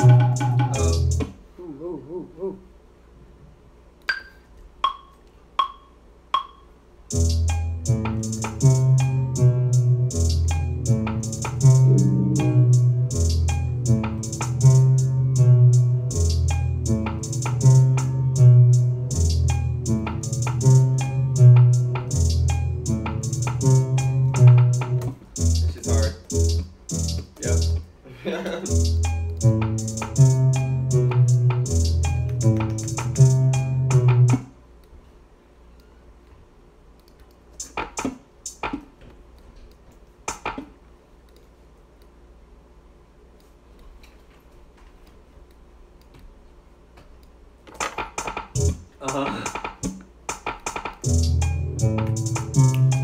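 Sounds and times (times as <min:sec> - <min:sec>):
deep bass notes: 0:00.0 - 0:01.3, 0:07.1 - 0:27.8, 0:28.7 - 0:34.4, 0:51.0 - 0:53.0
repeating melody: 0:00.0 - 0:01.3, 0:06.4 - 0:27.8, 0:28.7 - 0:34.3, 0:51.0 - 0:53.0
hi-hat ticks: 0:06.4 - 0:27.8, 0:28.7 - 0:34.3, 0:37.0 - 0:38.8, 0:48.2 - 0:53.0.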